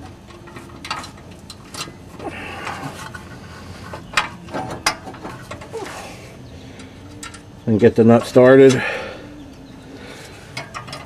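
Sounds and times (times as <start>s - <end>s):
metal clicks and scrapes: 0.3s - 6.0s, 7.0s - 7.5s, 10.5s - 11.0s.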